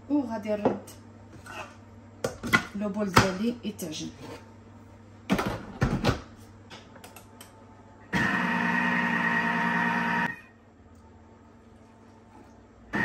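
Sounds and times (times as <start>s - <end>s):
kitchen mixer motor humming: 8.1s - 10.4s.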